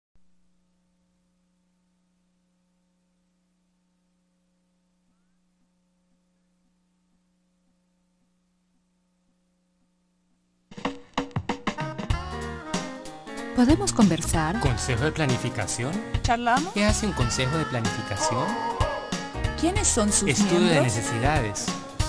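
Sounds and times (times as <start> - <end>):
faint electrical hum: 0.2 - 10.7.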